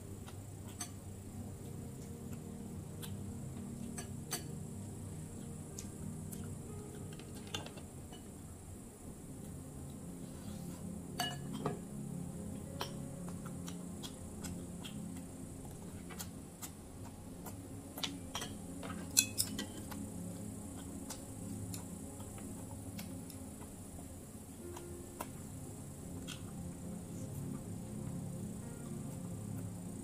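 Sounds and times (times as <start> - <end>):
utensils clinking on dishes: 11.2 - 11.8, 18.0 - 20.0.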